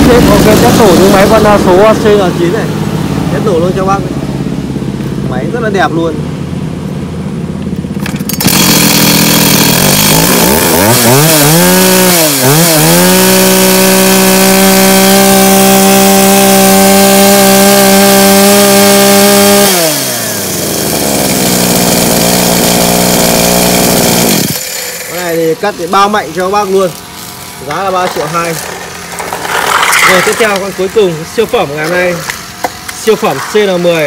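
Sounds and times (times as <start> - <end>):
chainsaw engine revving: 0.0 - 4.5, 7.9 - 34.0.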